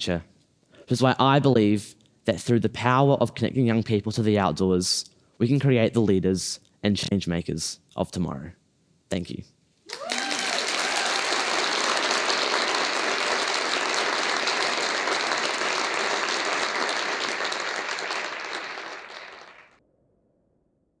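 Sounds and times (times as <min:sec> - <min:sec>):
audience applauding: 0:09.9 - 0:19.8.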